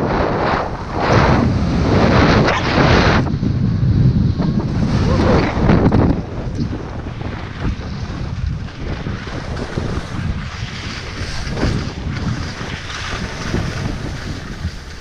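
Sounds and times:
wind buffeting microphone: 0.0 - 15.0
skis scraping over snow: 4.4 - 15.0.

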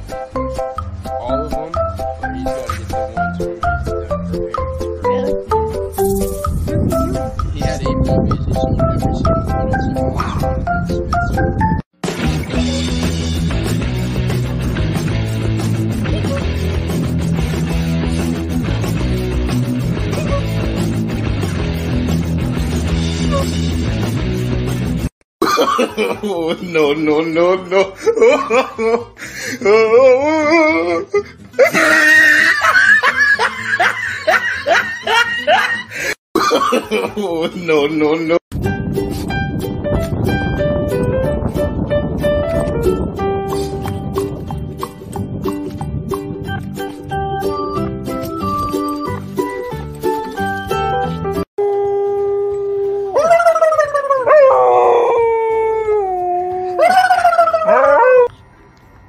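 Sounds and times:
person laughing hard: 25.4 - 38.2
dog howling: 51.6 - 58.3.

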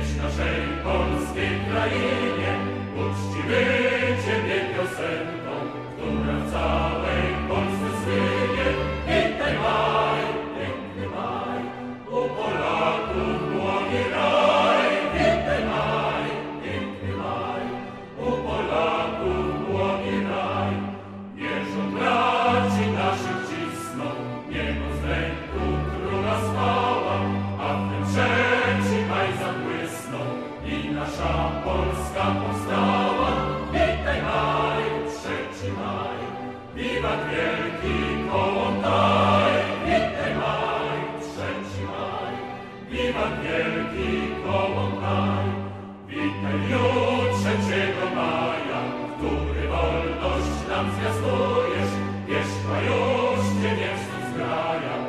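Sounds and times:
choir singing held notes: 0.0 - 55.0
choral music: 0.0 - 55.0
orchestral accompaniment: 0.0 - 55.0.

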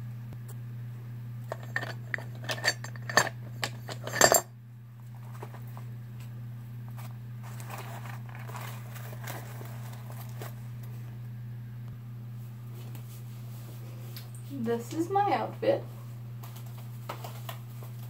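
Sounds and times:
steady low hum: 0.0 - 18.0
metal chain strap clinking: 1.5 - 4.5.

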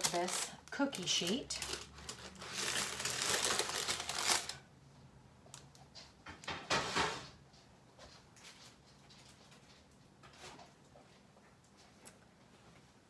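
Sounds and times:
parchment paper rustling: 0.0 - 4.7.

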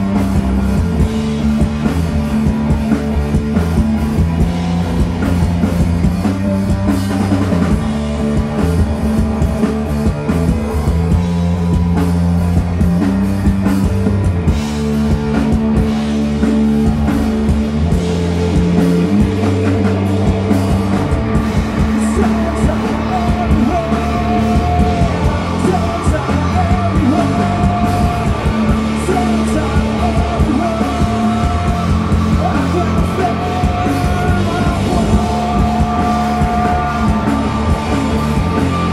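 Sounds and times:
rock band playing live: 0.0 - 38.9
man singing: 21.4 - 38.9.

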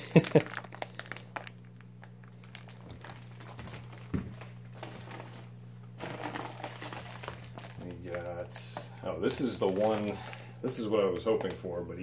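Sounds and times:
plastic bags crinkling: 0.0 - 12.0.

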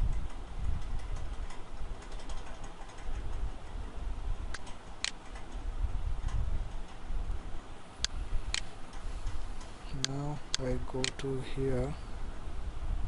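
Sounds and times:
low microphone rumble: 0.0 - 2.0, 5.6 - 13.0
computer mouse clicks: 0.1 - 3.4, 4.5 - 5.6.

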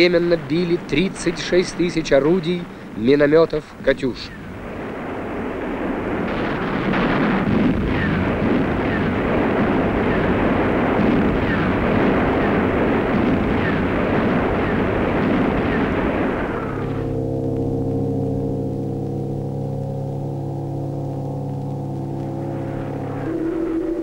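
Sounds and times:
artillery barrage rumble: 0.0 - 24.0
falling whistles: 10.0 - 10.4
deep gong-like ringing tone: 13.8 - 24.0.

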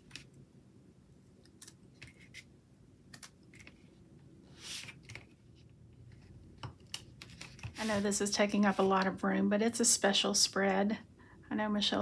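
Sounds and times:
paper rustle: 7.2 - 9.0.

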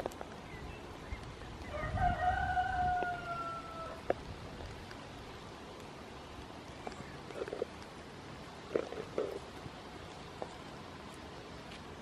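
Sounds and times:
rooster crowing: 1.7 - 4.1.

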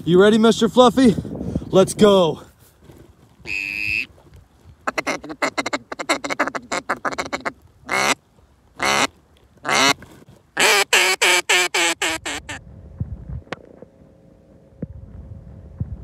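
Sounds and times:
duck call quacks: 3.4 - 4.1, 4.8 - 8.2, 8.8 - 10.0, 10.6 - 12.6.

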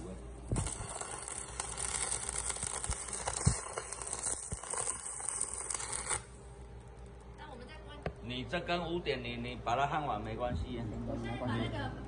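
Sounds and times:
welding arc crackling: 0.0 - 8.4.

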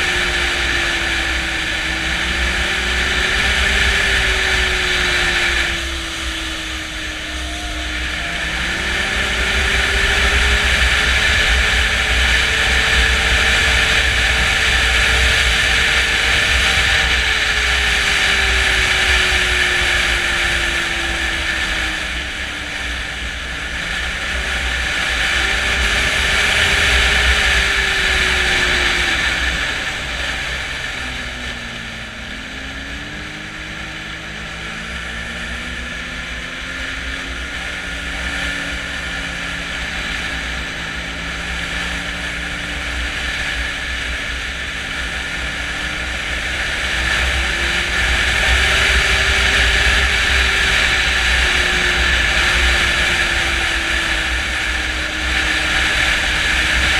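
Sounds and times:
snowmobile engine running: 0.0 - 56.9.

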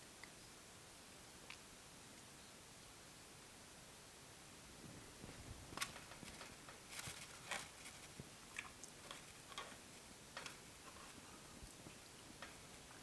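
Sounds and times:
chewing: 5.8 - 13.0.

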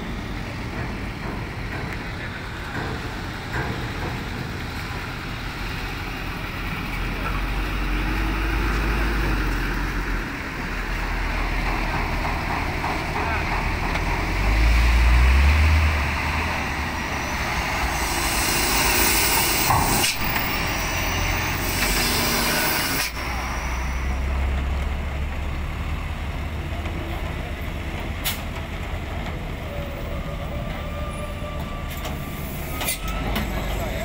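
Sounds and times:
diesel truck engines rumbling: 0.0 - 34.0
air brakes hissing: 16.8 - 24.3, 30.9 - 34.0
high brake squeal: 16.9 - 24.4, 29.6 - 34.0.

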